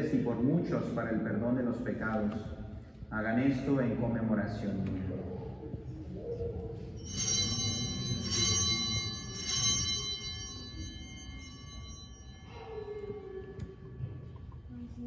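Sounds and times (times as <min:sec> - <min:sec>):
altar bells ringing: 0:07.0 - 0:15.0.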